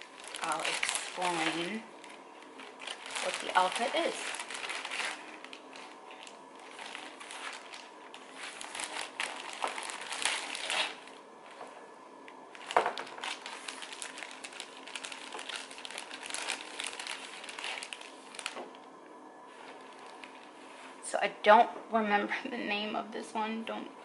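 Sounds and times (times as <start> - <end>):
plastic bag crinkling: 0.0 - 11.6, 12.4 - 18.8, 19.5 - 20.9.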